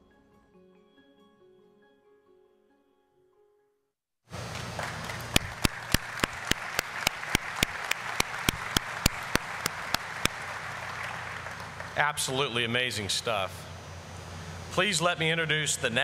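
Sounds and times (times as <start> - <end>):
audience applauding: 4.4 - 12.4
sharp close claps: 4.6 - 12.0.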